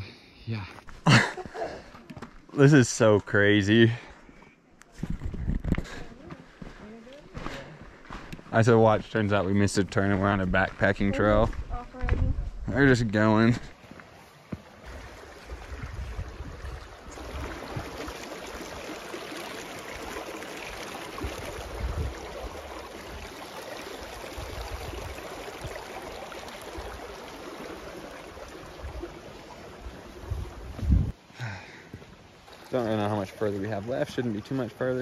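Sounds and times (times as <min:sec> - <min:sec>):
creek flowing over rocks: 0:12.8 - 0:35.0.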